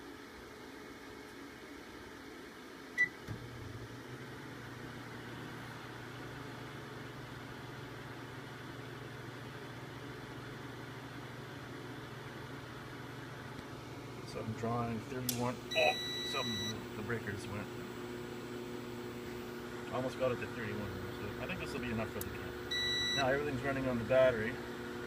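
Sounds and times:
microwave oven humming: 0:00.0 - 0:25.0
microwave beep: 0:03.0 - 0:03.2, 0:15.7 - 0:16.8, 0:22.7 - 0:23.4.

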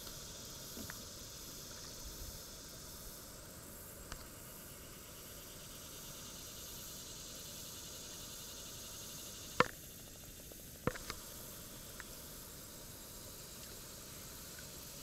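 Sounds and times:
steady high hiss: 0:00.0 - 0:15.0
fishing tackle clicks and knocks: 0:10.9 - 0:11.2.

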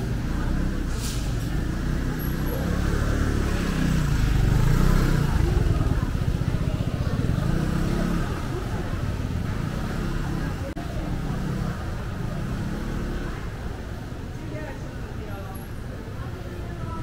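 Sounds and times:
vehicle engine rumbling: 0:00.0 - 0:17.0.

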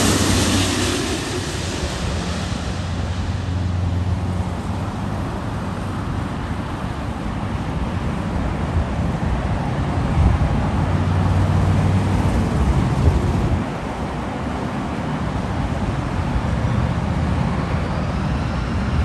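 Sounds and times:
wind on microphone: 0:00.0 - 0:05.8, 0:12.0 - 0:14.9
jet engines roaring: 0:00.0 - 0:08.0, 0:10.4 - 0:19.0.

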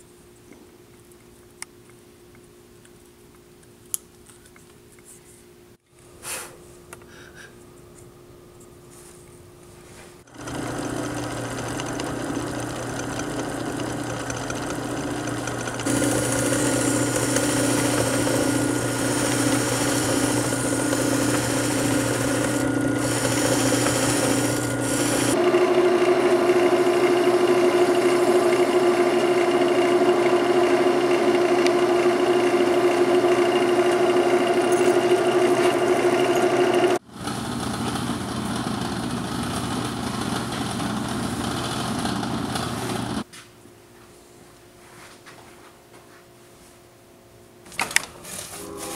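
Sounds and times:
buffing wheel spinning against wood: 0:10.3 - 0:43.2
motor humming: 0:10.3 - 0:43.2
wood lathe spinning: 0:10.3 - 0:43.3.

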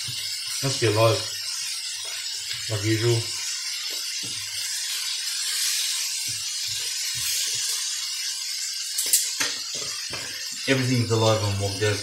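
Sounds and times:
seafood sizzling in frying pan: 0:00.0 - 0:12.0
utensil tapping in pan: 0:03.8 - 0:04.5, 0:09.0 - 0:10.4.

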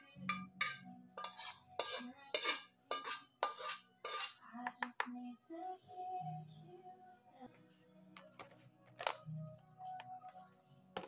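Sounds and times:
metal utensil scraping a pan: 0:00.2 - 0:04.4.

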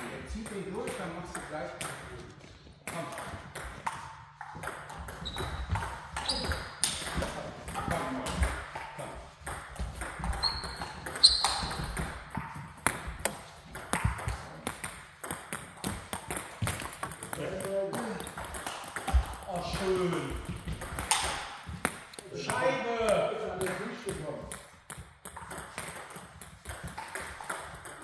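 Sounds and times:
short high squeaks: 0:10.4 - 0:11.8
table tennis ball clicking: 0:20.3 - 0:22.2.

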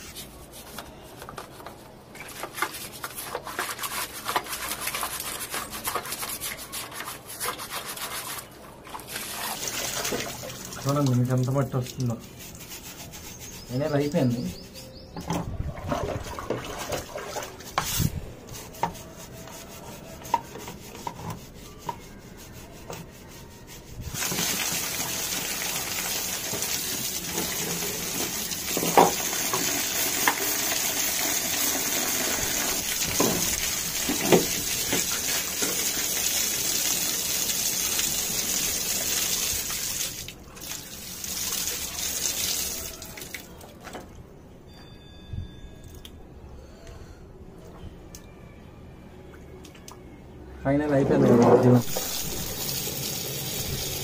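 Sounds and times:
running water with splashes: 0:08.8 - 0:12.4
water swished and scrubbed: 0:15.6 - 0:18.2.

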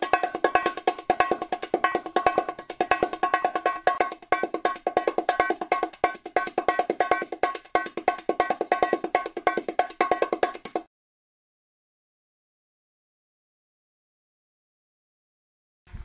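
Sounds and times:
fast pitched percussive music: 0:00.0 - 0:10.9.

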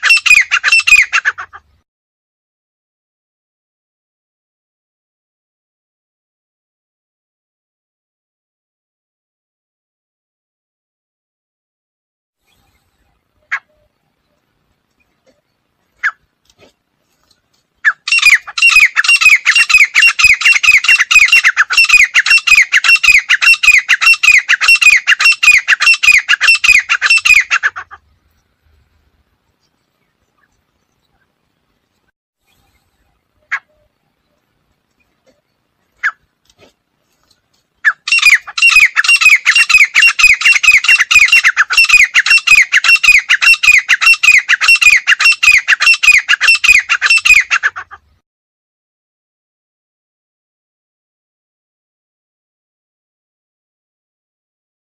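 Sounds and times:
francolin calling: 0:00.0 - 0:01.4, 0:17.8 - 0:28.0, 0:37.8 - 0:47.9.

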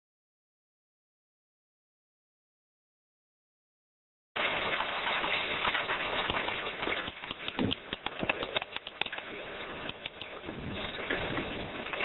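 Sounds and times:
irregular clicks and taps: 0:06.3 - 0:10.4.

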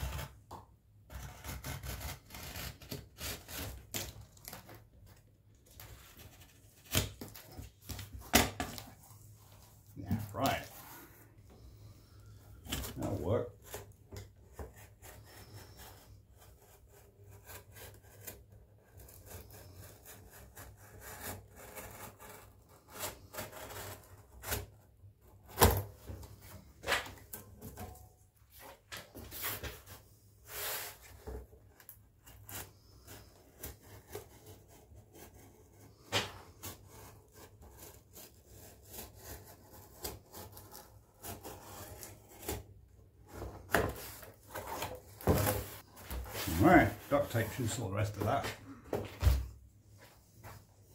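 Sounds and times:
knife cutting cardboard: 0:00.0 - 0:48.6
cardboard rustling and knocking: 0:43.3 - 0:47.0, 0:48.2 - 0:49.6.

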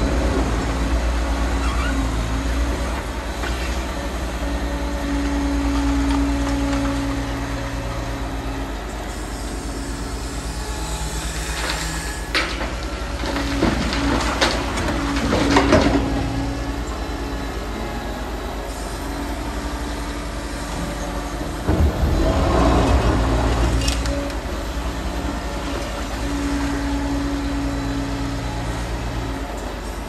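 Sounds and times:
excavator engine running: 0:00.0 - 0:30.0.

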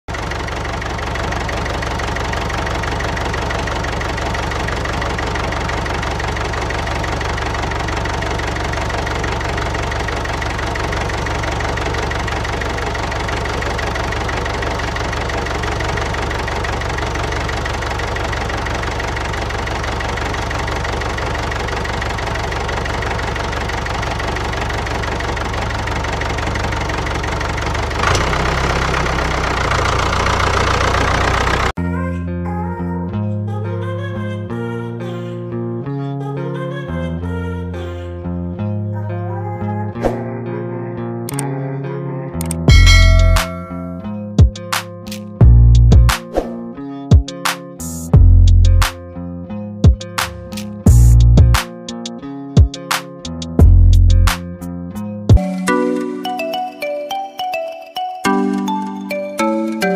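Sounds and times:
diesel tractor engine idling: 0:00.1 - 0:31.8, 0:42.7 - 0:44.0, 0:48.2 - 0:48.9, 0:50.1 - 0:51.6, 0:53.6 - 0:54.3
music: 0:31.8 - 0:59.9.

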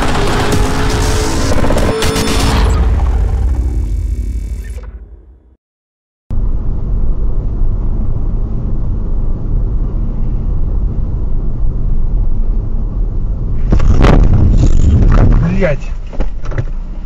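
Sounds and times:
car road and engine rumble: 0:06.3 - 0:17.0.

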